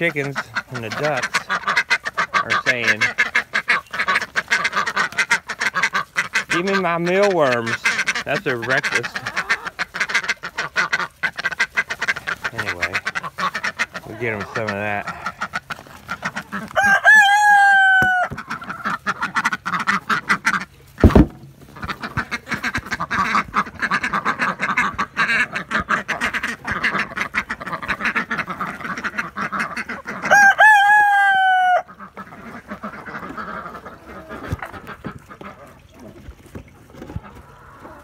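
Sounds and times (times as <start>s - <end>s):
chickens and ducks clucking: 0.0s - 38.0s
rooster crowing: 16.8s - 18.4s, 30.3s - 31.9s
loud thump: 21.0s - 21.5s.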